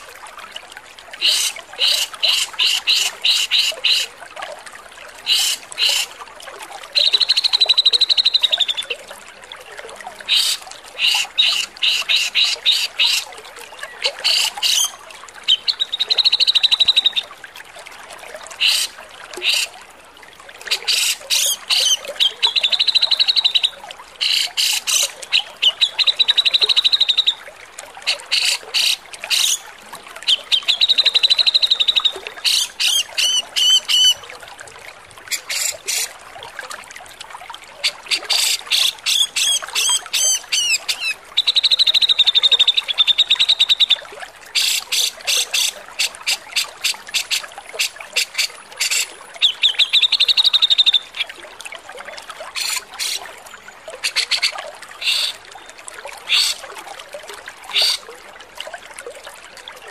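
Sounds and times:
bird harsh rasping calls: 0:01.2 - 0:04.0, 0:05.3 - 0:06.1, 0:35.4 - 0:36.1, 0:54.0 - 0:55.4, 0:56.3 - 0:56.6, 0:57.7 - 0:58.0.

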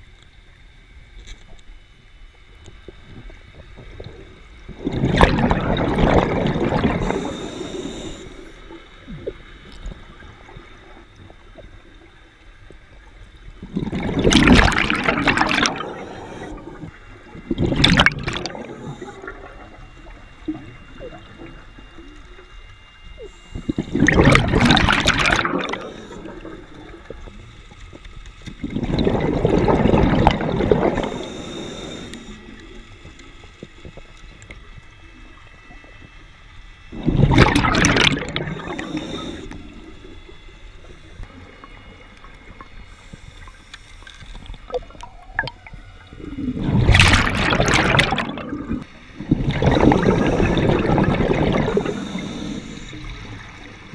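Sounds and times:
underwater breath bubbles: 0:03.2 - 0:10.9, 0:13.6 - 0:21.9, 0:23.2 - 0:27.6, 0:28.6 - 0:32.9, 0:36.9 - 0:43.6, 0:44.5 - 0:53.9
faint hiss: 0:06.9 - 0:13.5, 0:30.8 - 0:36.9, 0:51.6 - 0:53.9.

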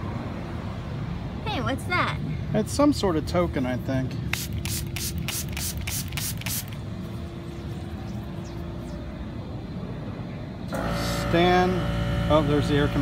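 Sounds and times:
machinery hum and rumble: 0:00.0 - 0:13.0
spray bottle squirting: 0:04.3 - 0:06.8.

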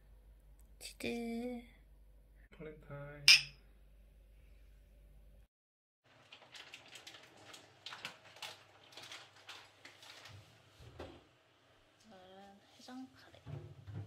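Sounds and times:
spoon clinking against dishes: 0:03.3 - 0:03.6.

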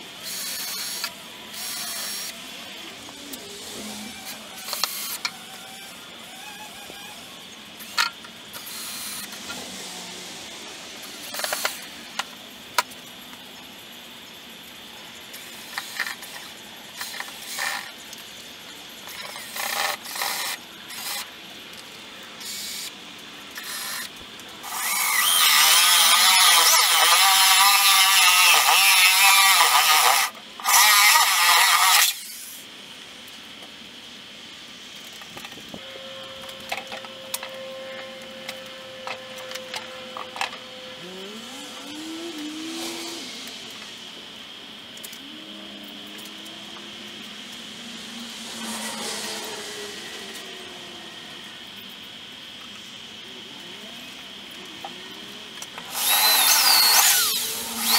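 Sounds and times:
power tool whining: 0:00.0 - 0:12.2, 0:23.6 - 0:32.6, 0:35.7 - 0:51.8, 0:55.6 - 0:57.9
cordless drill in short bursts: 0:00.2 - 0:02.3, 0:23.6 - 0:32.6, 0:55.9 - 0:57.9.

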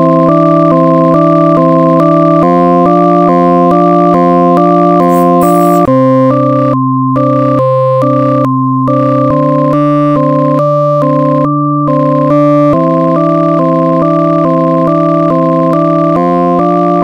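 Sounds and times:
electronic keyboard music: 0:05.1 - 0:05.9.

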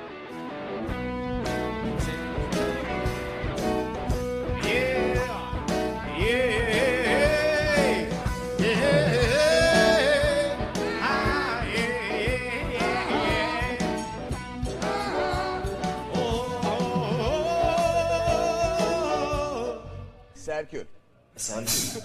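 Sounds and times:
strummed guitar: 0:00.0 - 0:19.6
person singing: 0:04.6 - 0:14.1, 0:14.7 - 0:20.2.

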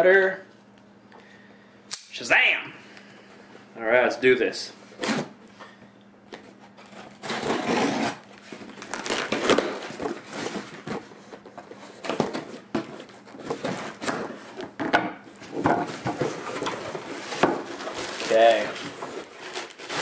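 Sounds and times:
cardboard scraping and rustling: 0:06.4 - 0:14.8, 0:15.4 - 0:20.0.

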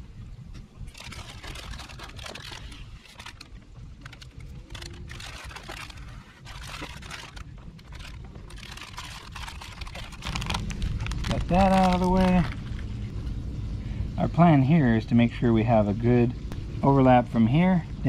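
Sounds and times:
steady low rumble: 0:00.0 - 0:18.0
scraper scraping sticky tape: 0:00.9 - 0:12.7.

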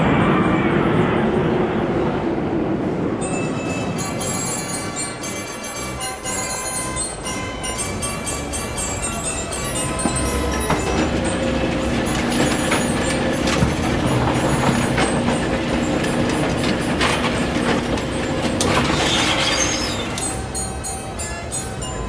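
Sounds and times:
mechanical hum: 0:03.2 - 0:22.0
lift chain clatter: 0:09.2 - 0:22.0.

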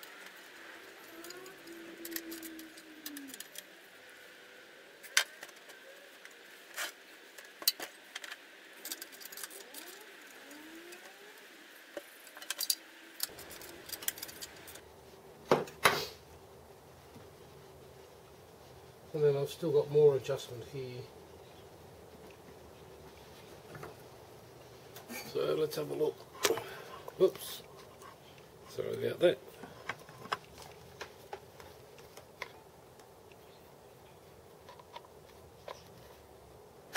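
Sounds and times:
metal tools clinking: 0:12.3 - 0:14.8.

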